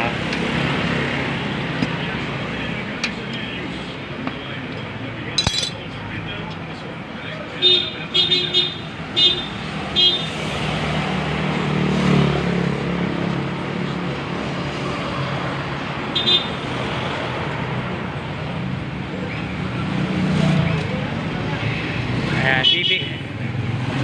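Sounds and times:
street traffic: 0.0 - 24.0
metallic clinks: 5.4 - 5.8.

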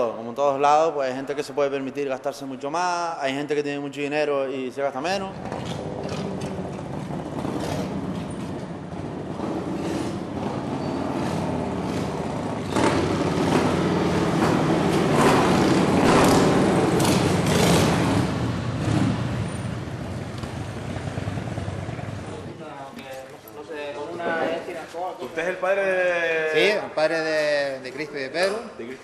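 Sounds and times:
motorcycles riding at low speed: 5.3 - 22.6.

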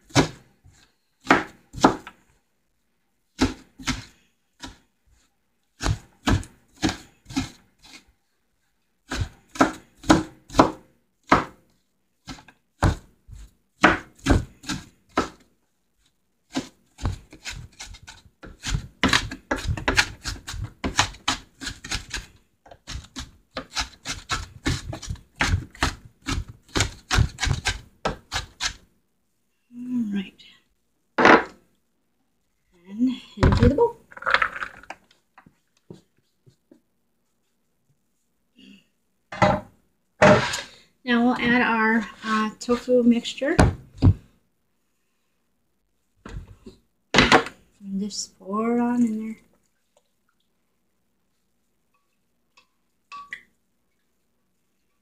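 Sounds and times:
knife chopping on cutting board: 9.1 - 11.6, 16.5 - 28.8.

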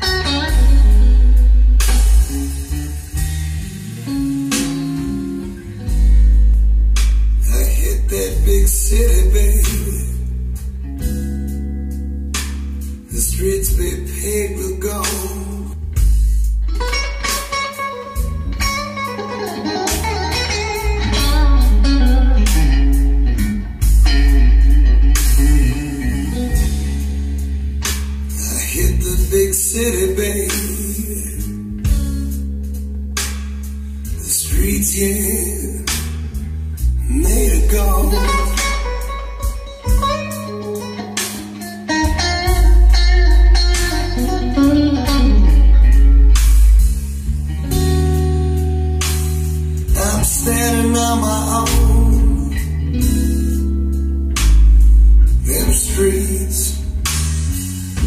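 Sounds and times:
guitar music with heavy bass: 0.0 - 58.0
drum strikes: 1.8 - 5.2, 15.0 - 27.2, 37.2 - 40.5.

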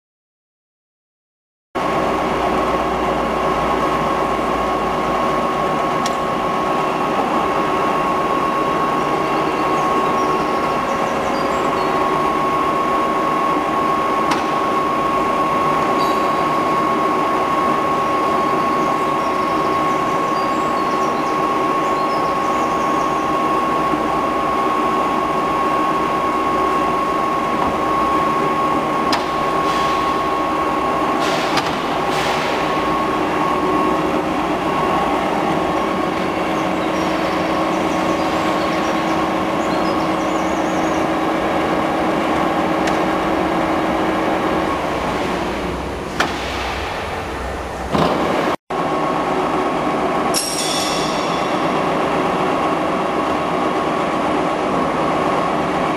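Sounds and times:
machine hum: 1.8 - 55.9
high-pitched whine: 2.2 - 55.9.

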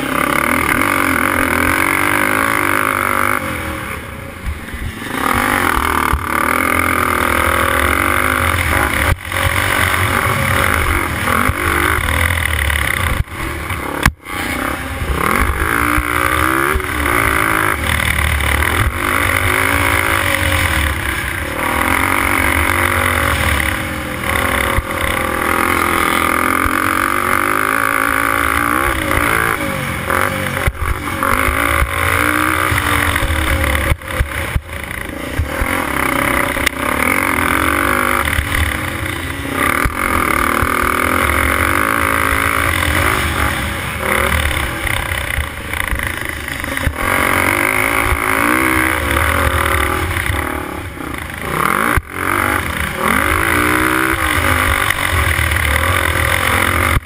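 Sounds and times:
quad engine revving hard: 0.0 - 57.0.

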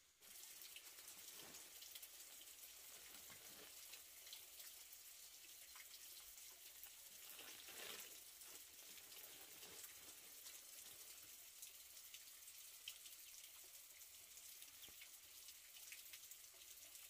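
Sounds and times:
faint steady rain: 0.0 - 17.0.

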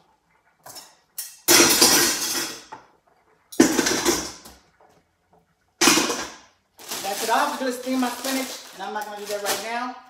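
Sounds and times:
dishes and pots clattering: 0.6 - 2.9, 3.5 - 4.6, 5.8 - 6.4.

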